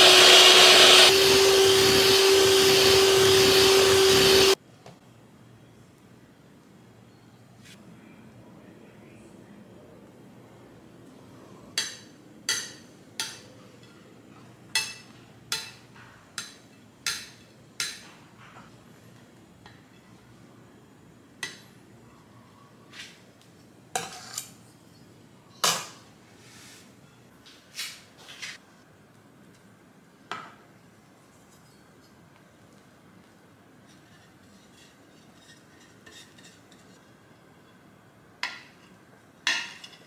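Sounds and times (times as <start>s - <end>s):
metal spatula clinking on dishware: 14.7s - 18.1s.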